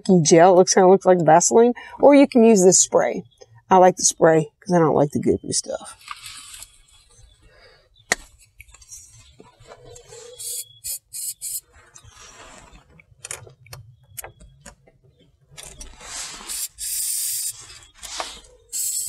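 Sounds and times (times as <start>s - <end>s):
aerosol spray hissing: 10.4s - 11.6s, 16.3s - 17.7s, 18.7s - 19.0s.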